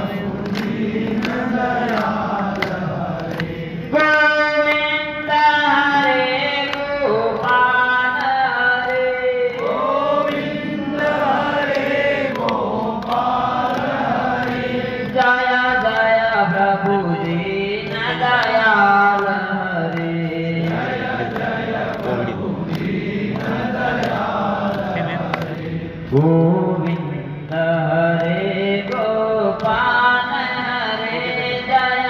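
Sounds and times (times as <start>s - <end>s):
voices chanting long held notes: 0.0s - 26.7s.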